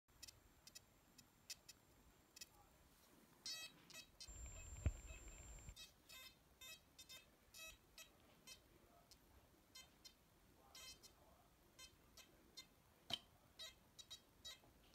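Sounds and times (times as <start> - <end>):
metal detector beeps: 4.2 - 5.8.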